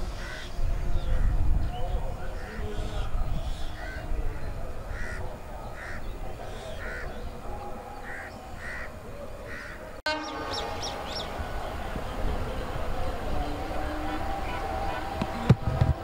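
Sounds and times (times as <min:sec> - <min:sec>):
crows cawing: 0:04.9 - 0:05.2, 0:05.8 - 0:07.2, 0:08.0 - 0:09.8.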